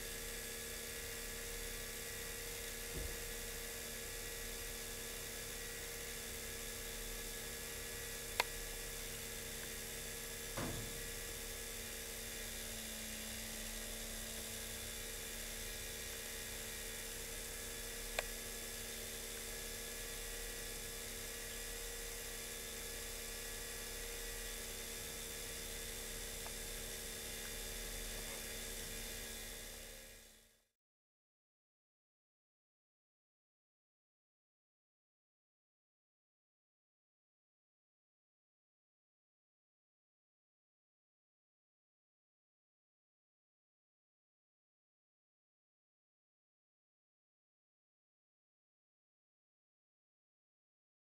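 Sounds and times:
whirring hum of electric motors: 0:00.0 - 0:30.6
soft thump: 0:10.6 - 0:11.2.

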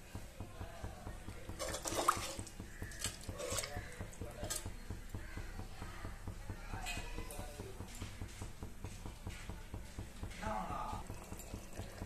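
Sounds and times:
boiling bubbles popping: 0:00.0 - 0:12.0.

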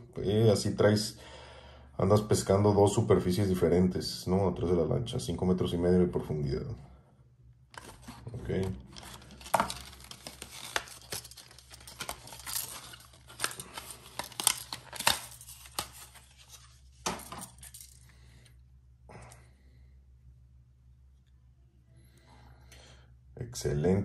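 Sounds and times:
plastic packaging crackling: 0:07.8 - 0:17.7.

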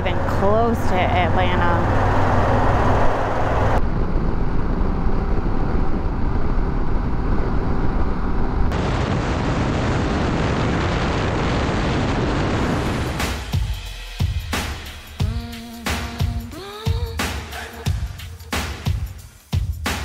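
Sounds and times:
motorcycle road noise: 0:00.0 - 0:08.8
wind rush on microphone: 0:01.1 - 0:13.2.

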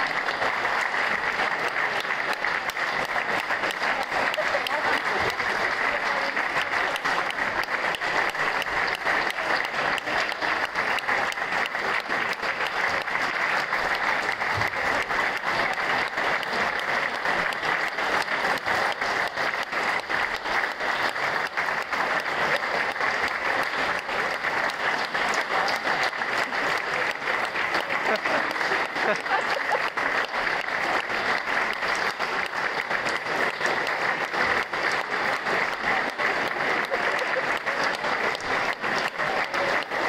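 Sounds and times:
crowd applauding: 0:00.0 - 0:40.0.

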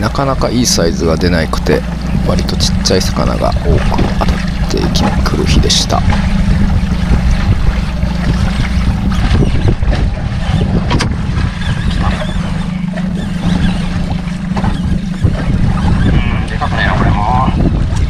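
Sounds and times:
water lapping against hull: 0:00.0 - 0:18.0
wind rumbling on microphone: 0:00.0 - 0:18.0.

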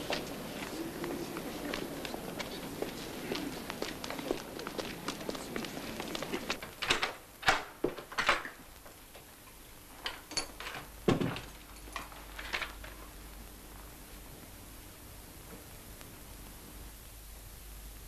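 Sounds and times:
shoe heels clicking: 0:00.0 - 0:06.7
door thud: 0:11.1 - 0:11.5.

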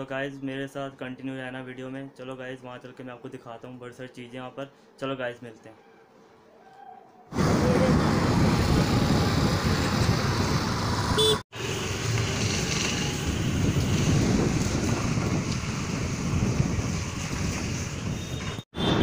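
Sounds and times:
road traffic rush: 0:07.3 - 0:19.0
short horn toots: 0:11.2 - 0:11.8.

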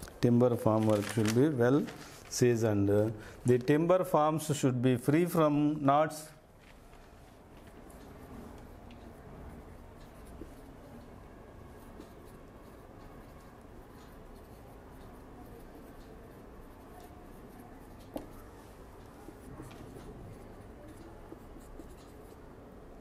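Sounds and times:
low room hum: 0:00.0 - 0:23.0
marker scratching on whiteboard: 0:07.9 - 0:10.8, 0:11.7 - 0:23.0.

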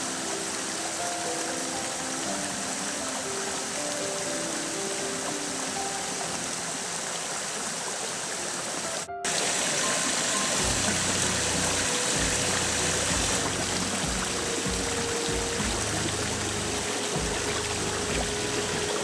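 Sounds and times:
faint background music: 0:00.0 - 0:19.0
water rushing over rocks: 0:00.0 - 0:19.0
low thumps: 0:10.6 - 0:19.0.

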